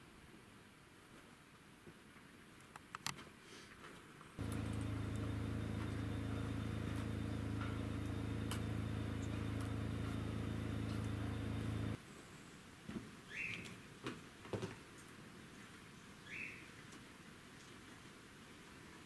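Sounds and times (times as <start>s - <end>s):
low engine hum: 4.4s - 12.0s.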